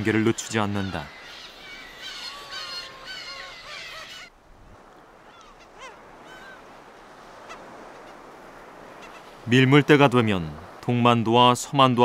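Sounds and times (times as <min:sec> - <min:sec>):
birds calling: 0:00.0 - 0:09.4.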